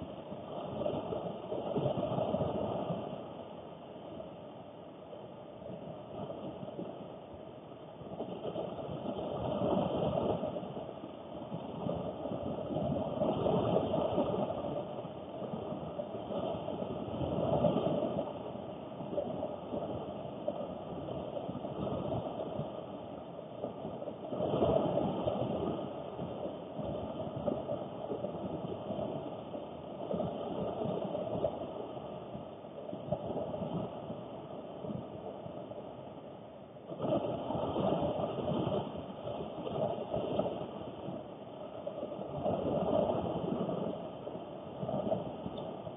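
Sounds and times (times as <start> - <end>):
heavy rain on a car roof: 19.2 - 22.8, 23.6 - 32.1, 37.0 - 41.2, 41.9 - 44.2.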